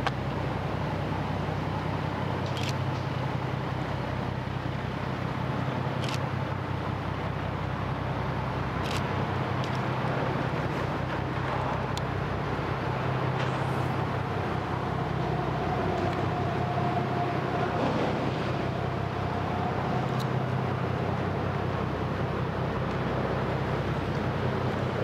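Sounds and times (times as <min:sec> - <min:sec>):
low engine drone: 0:00.0 - 0:25.0
outdoor background noise: 0:00.0 - 0:25.0.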